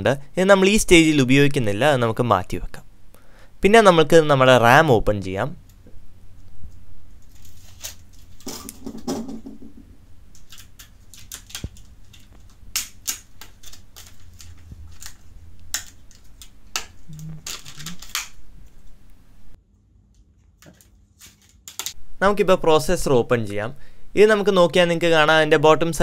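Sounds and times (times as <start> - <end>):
plastic packaging clicking and crackling: 10.3 - 18.9, 20.6 - 22.0.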